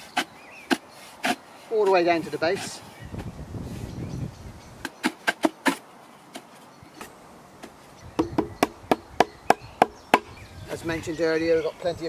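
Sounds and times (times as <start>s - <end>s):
wood knocking on wood: 7.0s - 10.4s.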